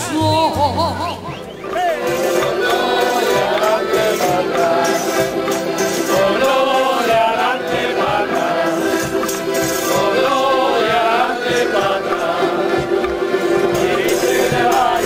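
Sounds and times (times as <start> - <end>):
guitars playing: 0.0 - 11.7
accordions playing: 0.0 - 15.0
men singing together: 0.2 - 15.0.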